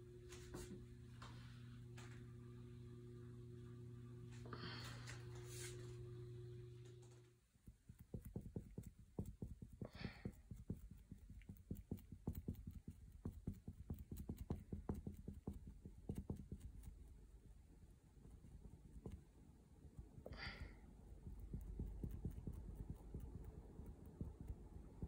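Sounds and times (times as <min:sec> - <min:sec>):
low steady hum: 0:00.0 - 0:25.0
paintbrush dabbing on canvas: 0:07.5 - 0:25.0.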